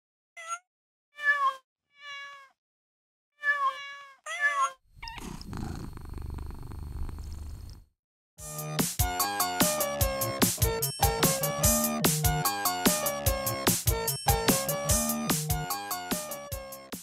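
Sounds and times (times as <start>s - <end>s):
cat meowing: 1.2s - 2.6s, 3.4s - 6.0s.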